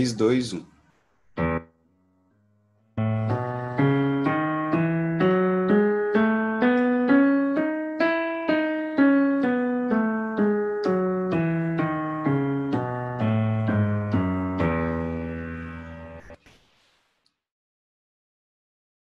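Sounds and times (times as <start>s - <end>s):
piano scale on keyboard: 1.4s - 16.4s.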